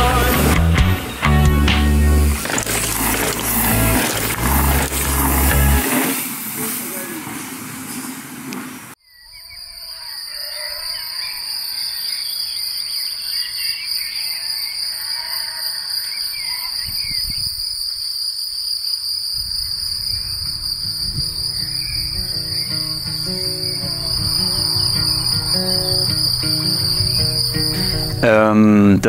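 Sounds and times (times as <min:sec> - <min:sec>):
loud noise cut off: 0:02.3 - 0:07.1
crickets chirping: 0:02.4 - 0:08.4, 0:09.0 - 0:28.3
bird chirps: 0:09.0 - 0:15.1, 0:19.7 - 0:28.2.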